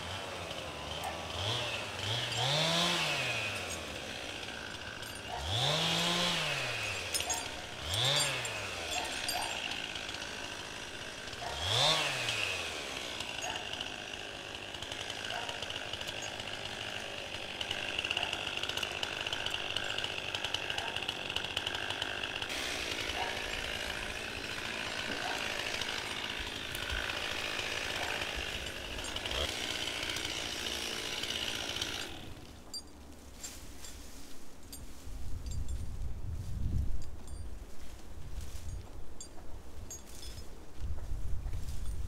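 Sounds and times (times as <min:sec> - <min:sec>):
chainsaw engine revving: 0:00.0 - 0:32.5.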